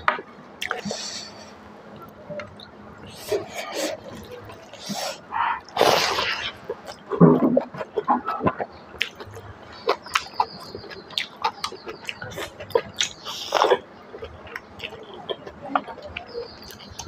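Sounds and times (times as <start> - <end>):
person chewing with wet smacking: 0.1 - 1.0, 2.0 - 17.0.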